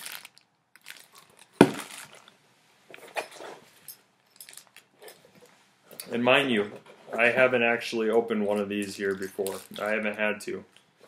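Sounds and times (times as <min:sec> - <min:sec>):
plastic-bagged object knocking down: 0:01.6 - 0:02.2.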